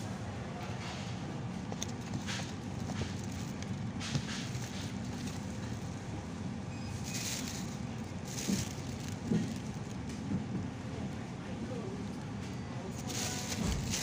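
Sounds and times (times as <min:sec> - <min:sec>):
supermarket hum and murmur: 0:00.0 - 0:14.0
short rustles: 0:06.9 - 0:10.0.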